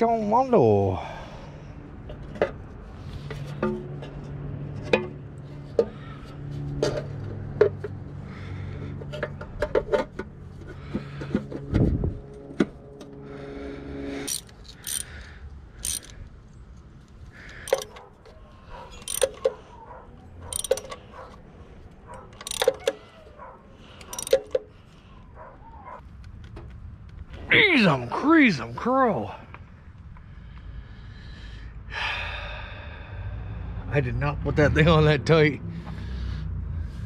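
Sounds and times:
metal tools clinking: 14.2s - 15.2s, 15.8s - 16.2s, 17.5s - 21.4s, 22.0s - 24.7s.

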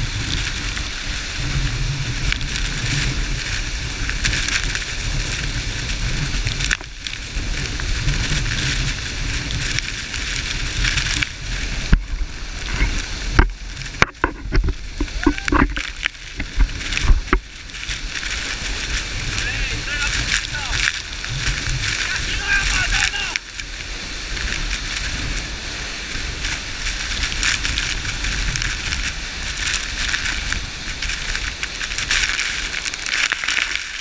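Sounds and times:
low rumble: 0.0s - 33.1s
waterfall rushing: 10.1s - 34.0s.

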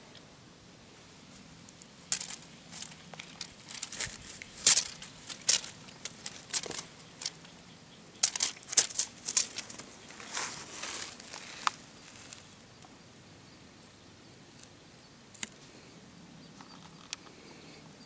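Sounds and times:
fabric wings fluttering and rustling: 2.1s - 7.4s.

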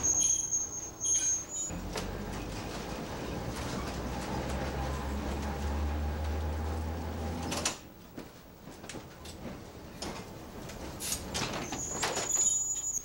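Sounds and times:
streetcar electric hum: 1.6s - 11.6s.

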